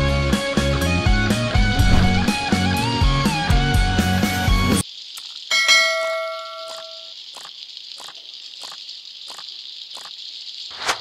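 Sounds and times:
steady hiss: 4.3 - 11.0
bell-like chime: 5.5 - 7.1.

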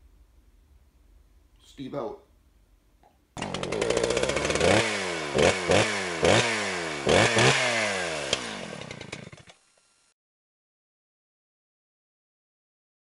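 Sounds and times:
small engine revving: 3.4 - 10.2.

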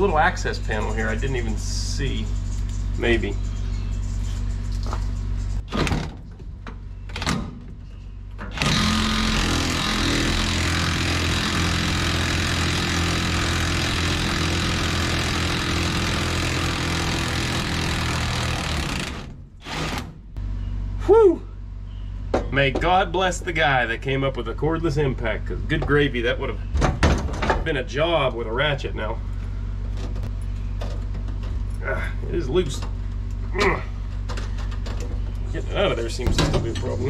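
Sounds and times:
impact wrench hammering: 8.6 - 19.3.

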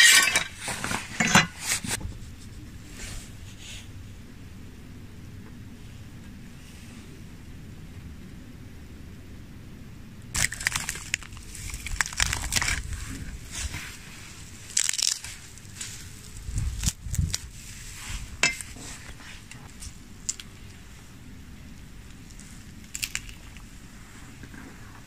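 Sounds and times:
roasted bird skin crackling and tearing: 10.4 - 17.6, 22.1 - 23.9.

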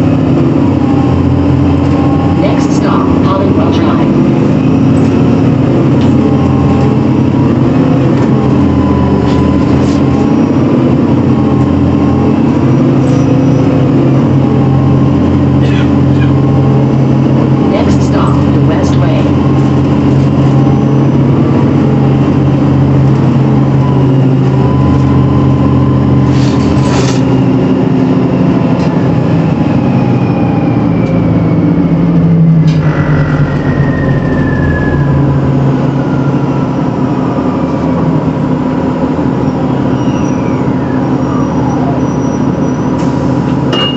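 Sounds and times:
bus engine drone: 0.0 - 43.9
gliding whine: 0.0 - 43.9.

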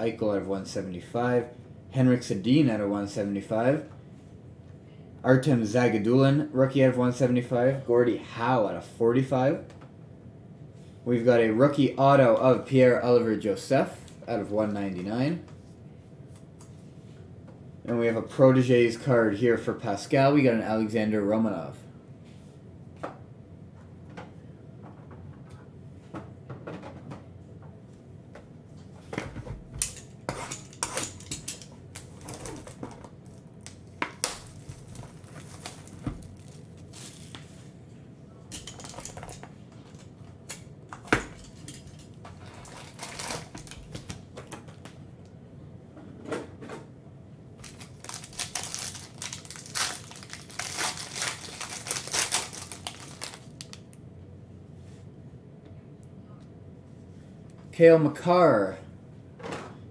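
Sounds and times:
plastic wrap crinkling and tearing: 31.0 - 37.6, 42.4 - 44.2, 47.6 - 53.9.

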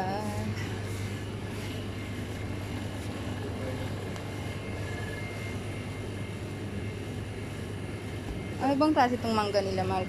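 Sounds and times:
refrigerated display cases humming: 0.0 - 10.0.

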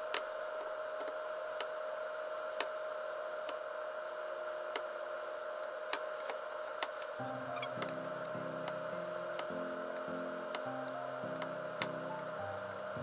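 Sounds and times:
background hum: 0.0 - 13.0.

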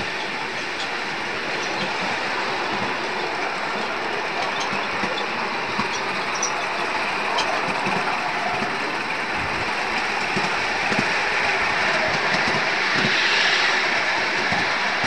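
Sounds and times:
miniature steam train running: 0.0 - 15.0.

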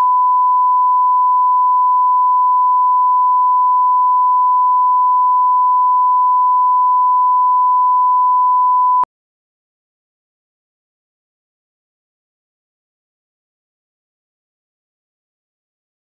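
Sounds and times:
steady sine test tone: 0.0 - 9.0.

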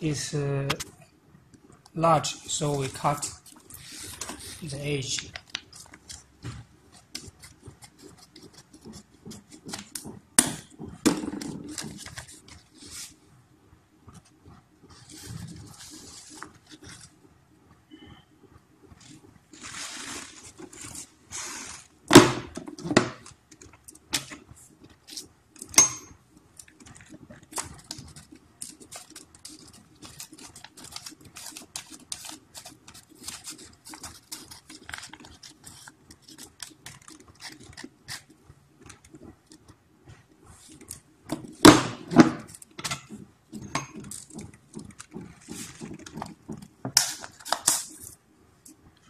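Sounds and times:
paper clicks and rustles: 2.6 - 13.2, 14.1 - 17.2, 19.0 - 21.9, 26.5 - 41.7, 42.4 - 48.2.

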